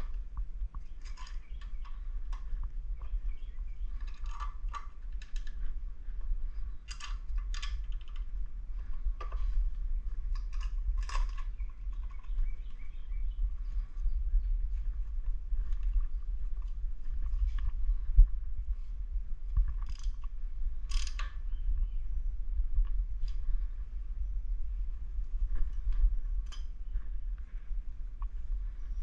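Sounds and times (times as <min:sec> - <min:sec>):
light clicks and scrapes of parts: 0:00.0 - 0:12.9, 0:19.5 - 0:21.4, 0:25.2 - 0:27.0
steady low rumble: 0:00.0 - 0:29.0.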